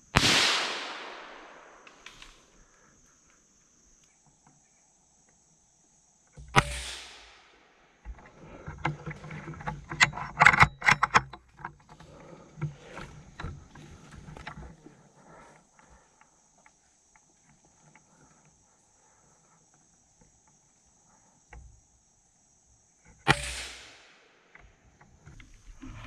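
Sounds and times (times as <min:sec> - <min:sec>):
crackling in leaves and branches: 0:00.0 - 0:05.5, 0:11.4 - 0:21.5
rifle shot: 0:00.1 - 0:02.4, 0:06.5 - 0:07.7, 0:23.3 - 0:24.4.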